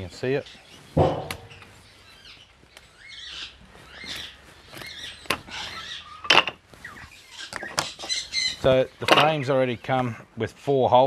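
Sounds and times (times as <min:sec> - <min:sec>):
wooden knocks of frames handled: 0:01.0 - 0:01.7.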